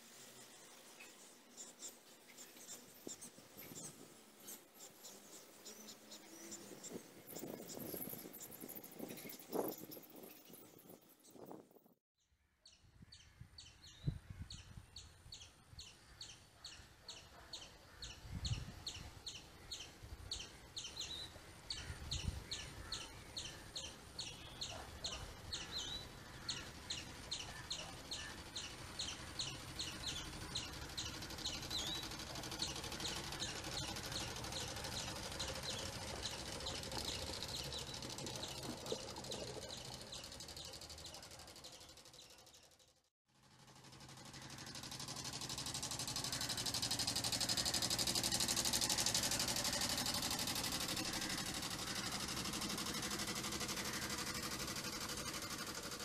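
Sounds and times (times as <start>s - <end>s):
electric motor and propeller whine: 25.3s - 42.7s, 43.3s - 56.0s.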